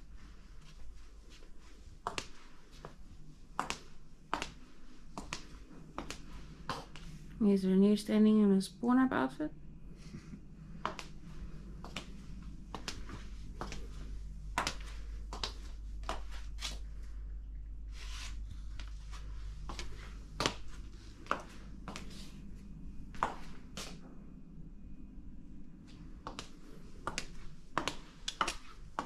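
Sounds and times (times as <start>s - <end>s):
steady low hum: 0.0s - 29.0s
footsteps on hard floor: 0.6s - 7.2s, 10.8s - 17.0s, 18.0s - 24.0s, 26.3s - 29.0s.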